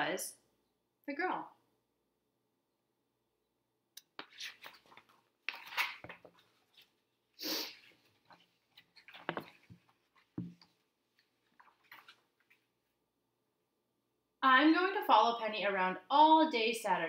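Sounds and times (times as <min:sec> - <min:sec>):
paper pages flipping: 0:04.1 - 0:07.1, 0:07.7 - 0:12.7.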